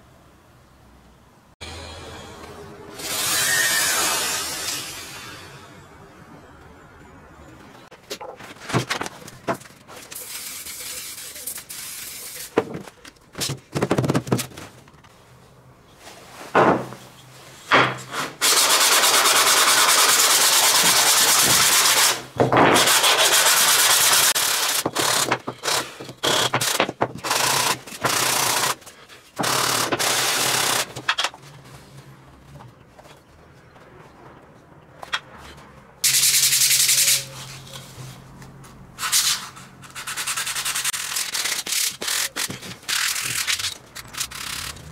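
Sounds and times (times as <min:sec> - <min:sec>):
sanding on sandpaper: 0:10.2 - 0:12.6, 0:18.4 - 0:22.2, 0:22.8 - 0:24.8, 0:36.1 - 0:37.8, 0:39.0 - 0:44.9.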